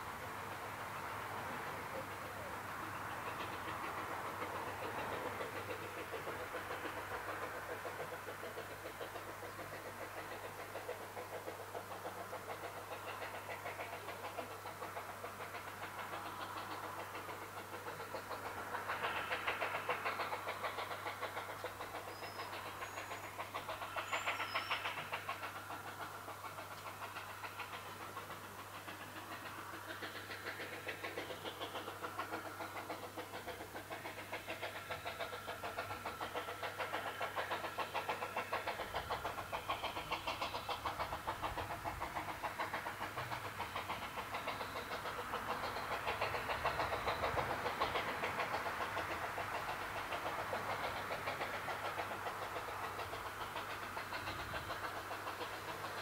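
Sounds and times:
steam locomotive exhaust beats: 0.0 - 56.0
faint bird chirps: 22.0 - 25.0.

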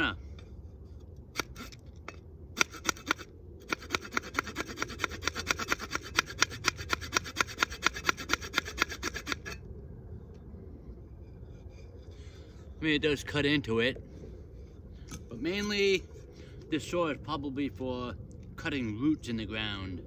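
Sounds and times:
saw rasping through wooden stick: 2.6 - 9.6, 11.2 - 12.9.

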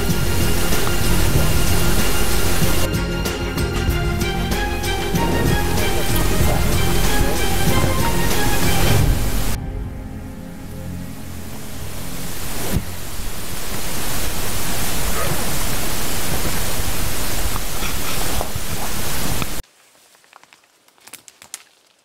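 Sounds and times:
loud rushing noise: 0.0 - 17.6.

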